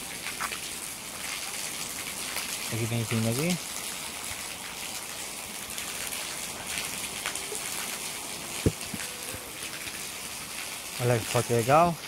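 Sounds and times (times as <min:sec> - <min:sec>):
waterfall rushing: 0:05.8 - 0:12.0.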